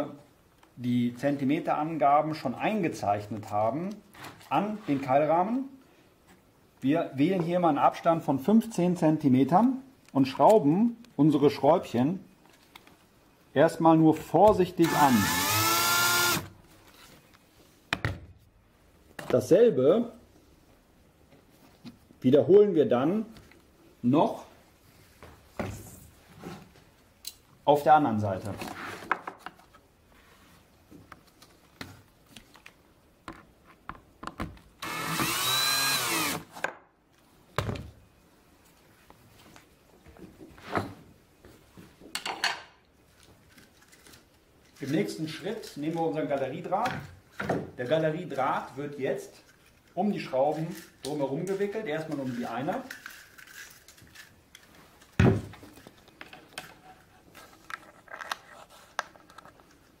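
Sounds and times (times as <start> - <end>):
cordless drill whining: 14.8 - 16.5, 34.8 - 36.5.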